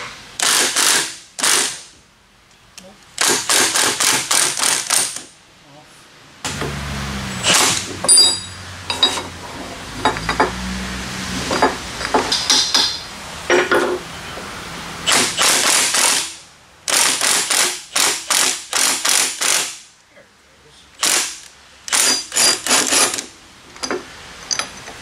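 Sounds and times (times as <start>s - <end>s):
impact wrench hammering: 0.4s - 1.9s, 3.2s - 5.3s, 7.4s - 9.3s, 11.5s - 14.0s, 15.1s - 19.8s, 21.0s - 24.0s.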